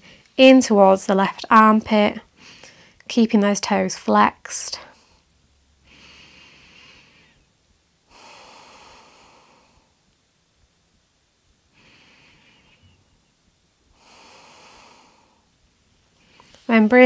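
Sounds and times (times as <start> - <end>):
woman breathing deeply: 2.3 - 3.0, 4.9 - 10.0, 11.7 - 13.3, 13.9 - 16.7.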